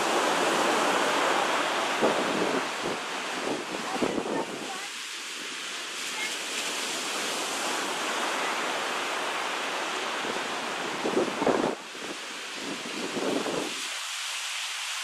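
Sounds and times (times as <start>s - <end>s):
wind buffeting microphone: 0.0s - 5.0s, 10.1s - 13.8s
waves breaking on beach: 0.0s - 15.0s.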